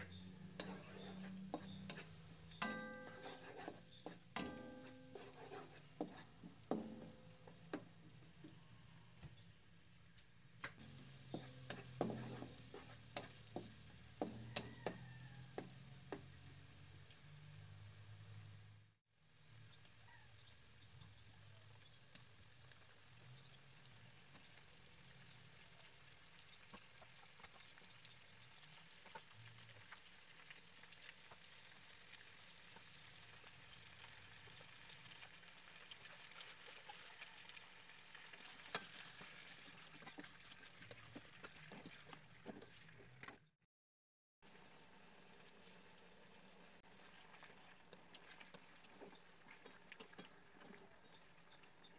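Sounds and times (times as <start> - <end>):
spatula scraping a pan: 0.0 - 7.9, 10.8 - 16.3, 38.3 - 43.2, 47.3 - 51.9
oil sizzling: 0.0 - 43.5, 44.4 - 51.9.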